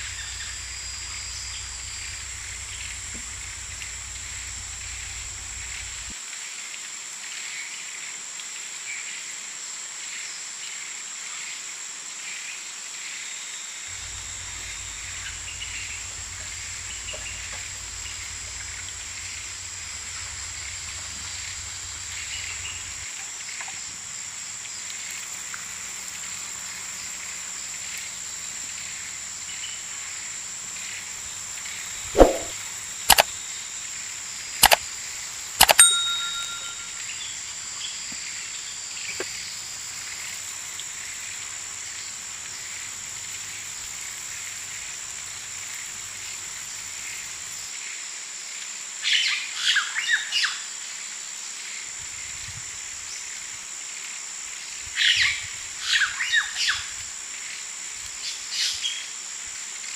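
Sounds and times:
high-pitched whine: 0.0 - 6.1, 13.9 - 23.1
sharp clicks: 32.2 - 32.5, 33.1 - 33.3, 34.6 - 34.8, 35.6 - 36.9.

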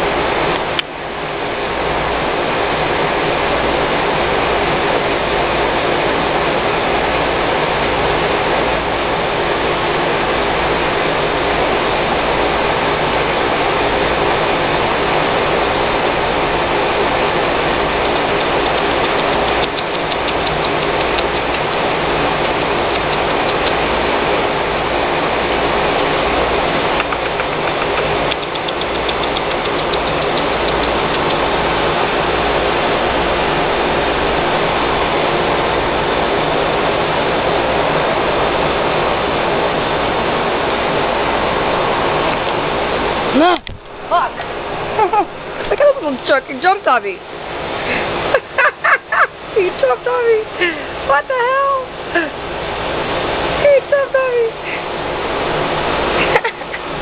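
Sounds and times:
machine motor drone: 4.6 - 46.3.

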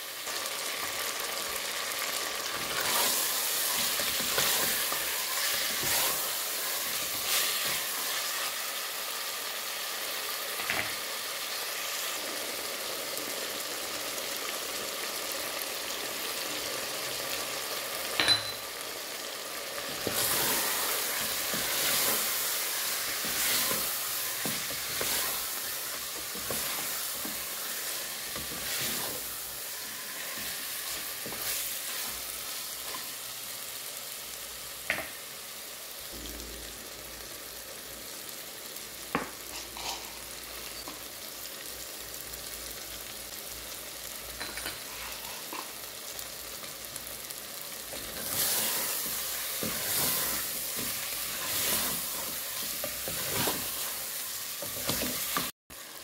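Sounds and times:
meat sizzling in hot oil: 0.0 - 56.0
spatula scraping and stirring: 2.4 - 8.8, 19.8 - 33.2, 44.4 - 46.8, 47.8 - 55.5.

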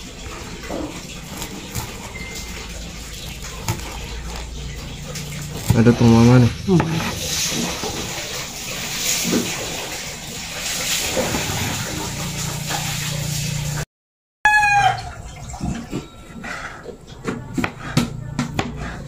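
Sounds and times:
rooster crowing: 14.4 - 15.3.

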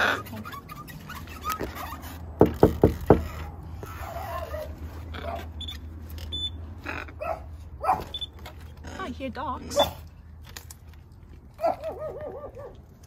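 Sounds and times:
muffled dogs barking: 7.2 - 8.2, 11.6 - 12.8.

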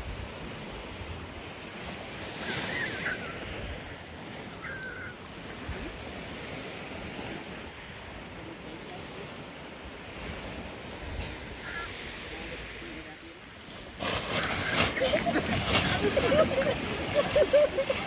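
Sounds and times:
surf washing on shore: 0.0 - 18.0.

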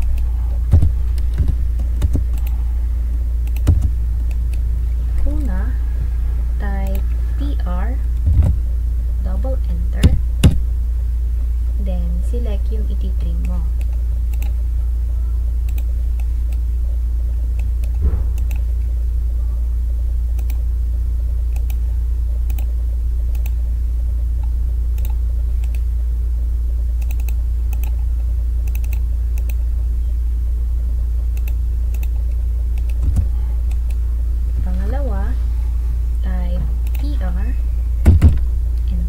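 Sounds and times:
computer mouse clicking: 0.0 - 2.6, 3.4 - 4.6, 13.4 - 14.6, 15.6 - 16.6, 17.6 - 18.7, 20.4 - 20.6, 21.5 - 21.8, 22.4 - 22.7, 23.3 - 23.6, 24.4 - 25.8, 27.0 - 28.0, 28.6 - 29.6, 31.3 - 34.0, 36.8 - 37.1
low electrical hum: 0.0 - 39.0
soft thump: 18.0 - 18.4.

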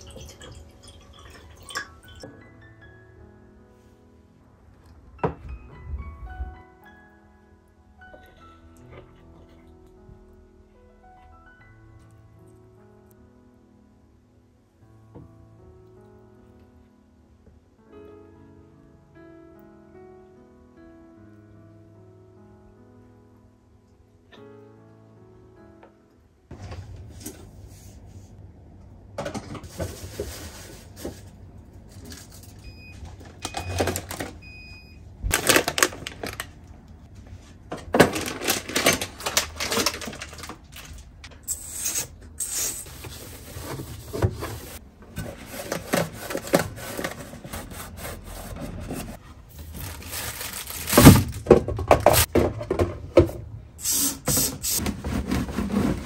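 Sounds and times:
bottles and jars clinking: 0.0 - 2.2
packets rustling: 35.3 - 36.6, 37.9 - 47.4, 48.9 - 52.3.

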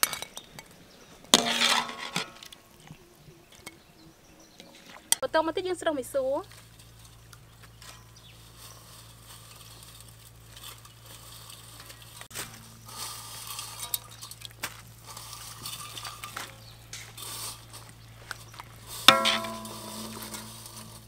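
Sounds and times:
strainer scraping metal wok: 1.3 - 2.5, 6.4 - 21.0.

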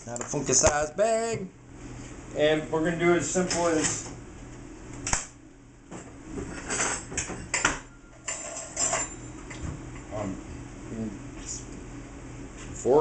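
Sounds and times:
clinks and knocks of dishes: 6.4 - 9.6.

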